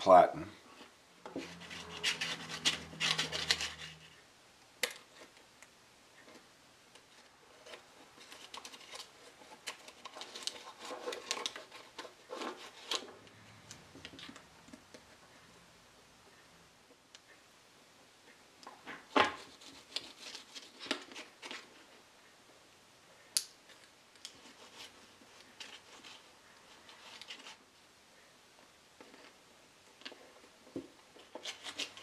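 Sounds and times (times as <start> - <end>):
metal spatula scraping on wood: 1.3 - 4.2.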